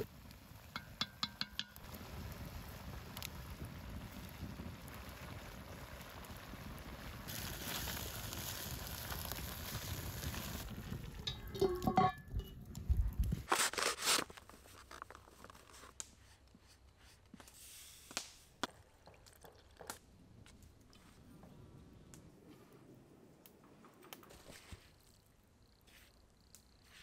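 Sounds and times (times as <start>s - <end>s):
fire crackling: 0.0s - 27.0s
metal lid scraping and clanking: 11.3s - 12.5s
steady hiss: 15.7s - 18.5s.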